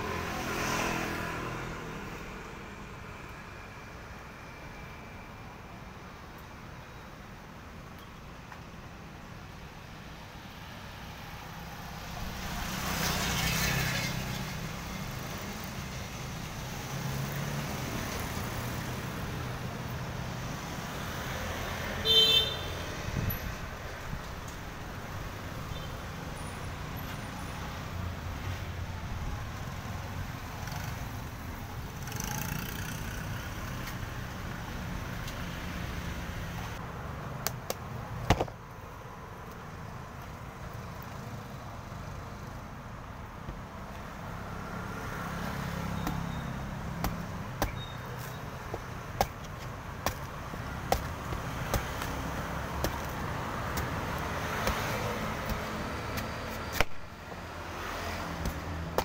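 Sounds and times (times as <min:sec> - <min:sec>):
street traffic rumble: 0:00.0 - 0:59.0
cleaver chopping coconut on board: 0:46.9 - 0:57.0, 0:58.2 - 0:59.0.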